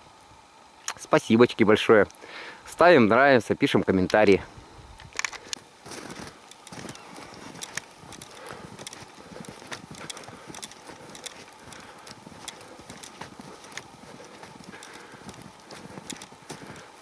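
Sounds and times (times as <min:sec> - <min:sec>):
faint steady rush: 0:00.0 - 0:17.0
footsteps crunching in snow: 0:05.6 - 0:17.0.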